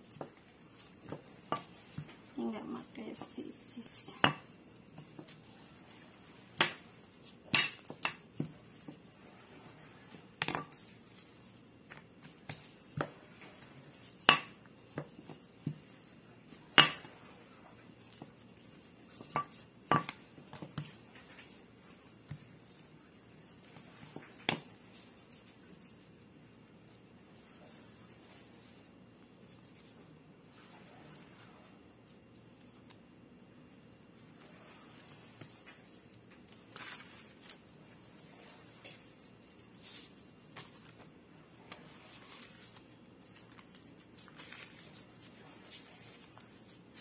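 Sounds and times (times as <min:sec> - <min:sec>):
rolling pin rolling dough: 0:00.0 - 0:33.0.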